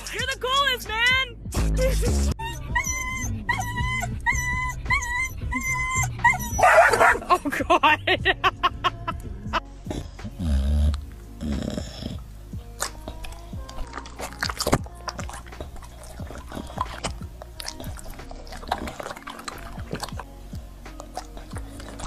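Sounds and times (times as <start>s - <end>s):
wet smacking and clicking: 10.9s - 22.0s.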